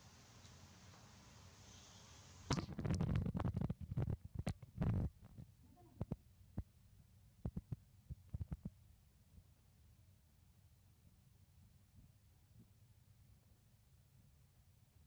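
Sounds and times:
rustling crackle: 2.4 - 6.2.

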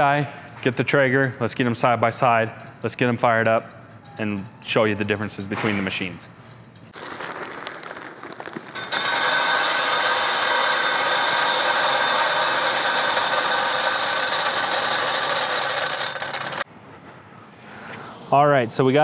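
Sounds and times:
pellets pouring rattle: 7.0 - 16.6.

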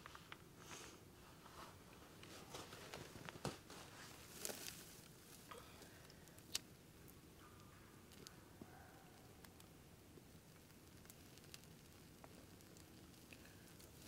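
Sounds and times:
twigs clicking and rustling: 4.2 - 6.7
twigs snapping: 4.3 - 6.7.

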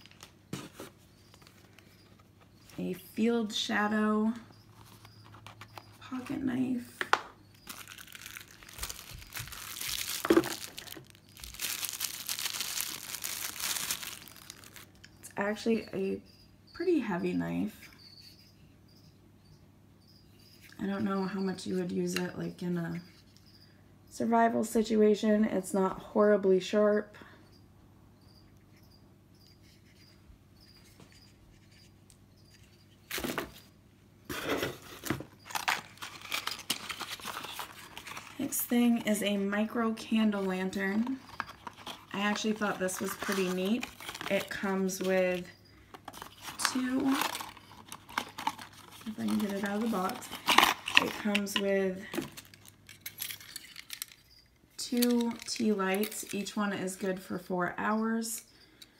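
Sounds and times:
plastic packaging crinkling: 0.0 - 1.8, 7.6 - 15.0, 34.4 - 54.3, 54.9 - 56.5
cardboard rustling and scraping: 0.0 - 2.7, 34.3 - 38.6, 40.2 - 51.4.

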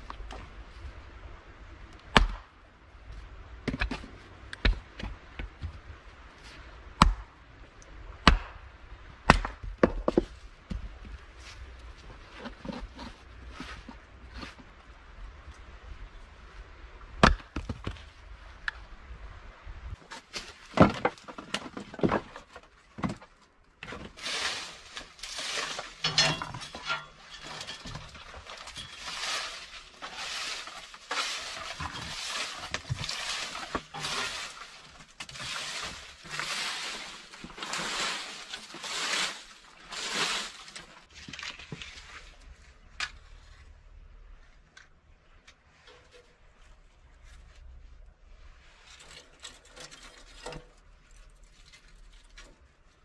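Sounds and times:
hatchet chopping kindling: 2.2 - 2.4, 8.2 - 8.6, 9.3 - 10.0
hatchet scraping wood shavings: 23.8 - 40.9.

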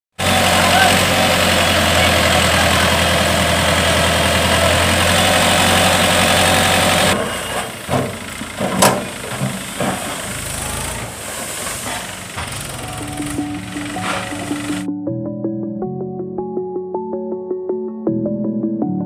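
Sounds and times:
tractor diesel engine running: 0.1 - 14.9
soil tumbling with thumps: 0.3 - 12.8.

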